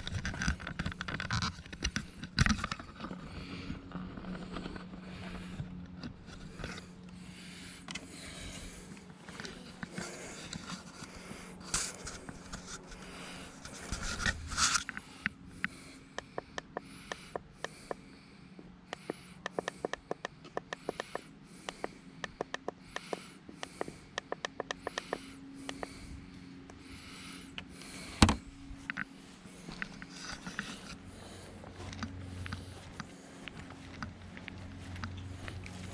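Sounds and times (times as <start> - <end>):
lawn mower humming: 0.0 - 17.3, 19.6 - 35.9.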